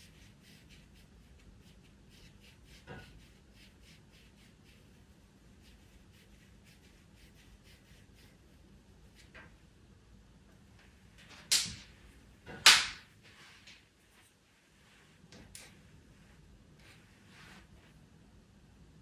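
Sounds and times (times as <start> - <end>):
pencil scratching on paper: 0.0 - 8.4.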